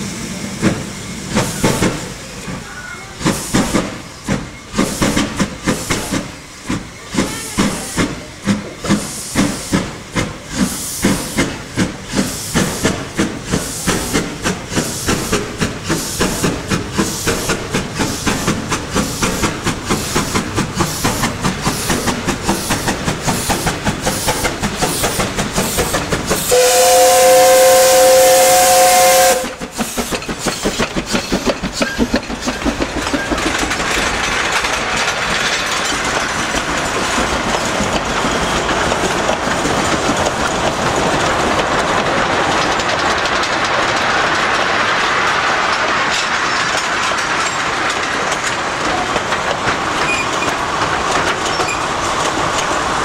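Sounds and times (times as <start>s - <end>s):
steam locomotive exhaust beating: 0.0s - 53.0s
train wheels clacking on rails: 0.0s - 53.0s
steam whistle blast: 26.5s - 29.6s.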